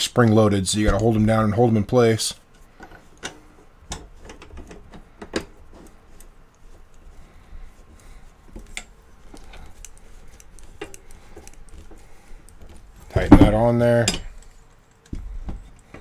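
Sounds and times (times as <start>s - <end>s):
metal parts clicking and tapping: 2.5s - 5.6s, 8.6s - 16.0s.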